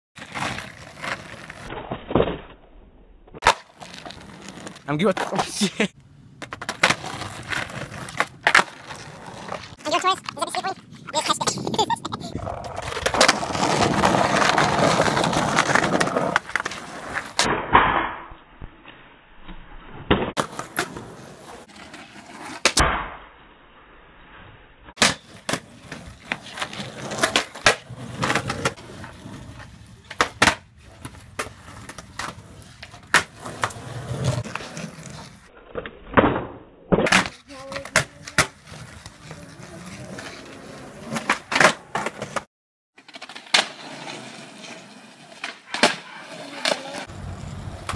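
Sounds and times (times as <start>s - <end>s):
skateboard tail popping and landing: 0.2s - 5.5s, 6.4s - 10.4s, 12.4s - 18.3s, 25.0s - 39.1s, 40.0s - 44.2s, 45.3s - 47.9s
skateboard wheels rolling on concrete: 0.2s - 18.7s, 19.5s - 23.0s, 24.4s - 47.9s.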